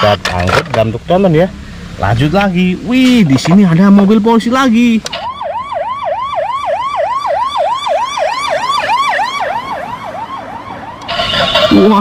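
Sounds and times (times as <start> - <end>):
police siren yelp: 5.1 - 12.0.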